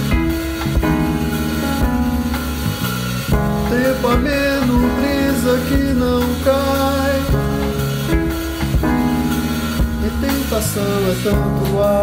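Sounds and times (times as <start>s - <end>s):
band music with keyboard: 0.0s - 12.0s
man singing: 3.6s - 8.3s, 9.8s - 12.0s.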